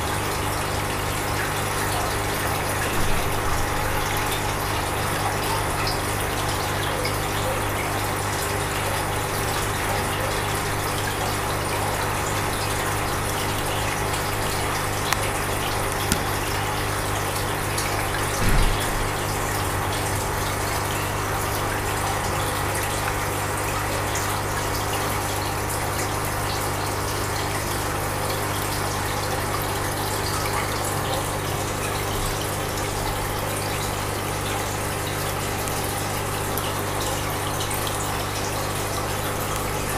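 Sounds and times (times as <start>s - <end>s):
rush of moving water: 0.0s - 39.9s
low thump: 18.4s - 19.0s.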